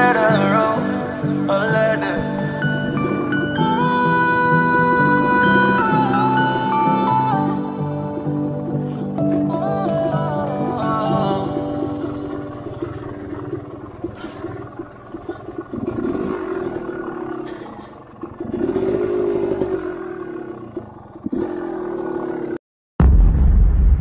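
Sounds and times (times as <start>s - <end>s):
dirt bike engine revving: 0.0s - 22.6s.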